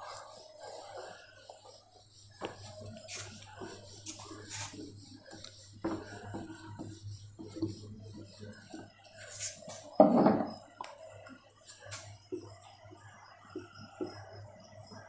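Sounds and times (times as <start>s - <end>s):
duster wiping a whiteboard: 0.0s - 10.8s, 11.6s - 12.5s
knock: 10.0s - 10.6s.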